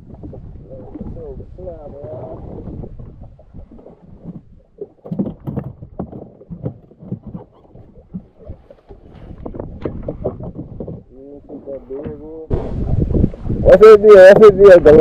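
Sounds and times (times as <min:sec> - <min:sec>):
water slapping against boat hull: 0:00.0 - 0:15.0
wind rumble on microphone: 0:00.0 - 0:15.0
knocks on boat: 0:04.2 - 0:11.2, 0:11.8 - 0:12.3.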